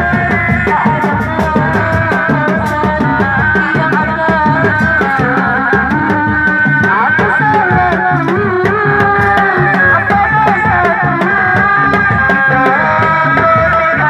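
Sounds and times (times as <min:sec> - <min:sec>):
drums beating fast rhythm: 0:00.0 - 0:14.0.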